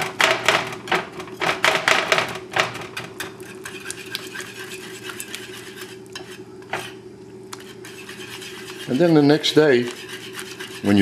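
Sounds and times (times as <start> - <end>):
whisk clattering against pot: 0.0 - 6.9, 7.6 - 11.0
whisk scraping and stirring: 3.1 - 11.0.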